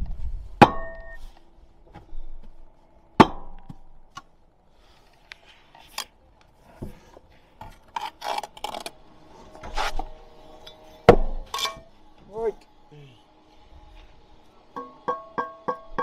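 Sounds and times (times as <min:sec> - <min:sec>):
trowel scraping mortar: 0:07.7 - 0:09.0.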